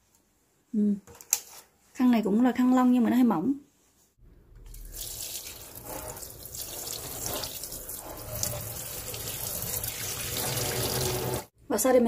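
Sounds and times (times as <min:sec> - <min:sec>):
tap water running into sink: 0:04.6 - 0:11.5.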